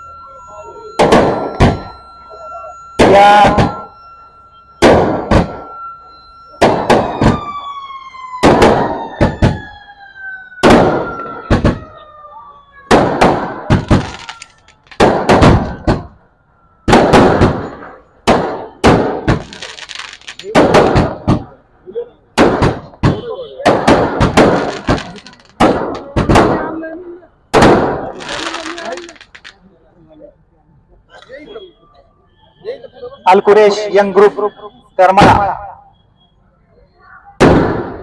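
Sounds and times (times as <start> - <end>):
fireworks whistling: 0.0 - 21.6, 22.4 - 26.8, 27.5 - 29.6
fireworks bangs: 0.9 - 12.1, 12.8 - 16.2, 16.8 - 21.6, 22.3 - 29.6, 37.4 - 38.0.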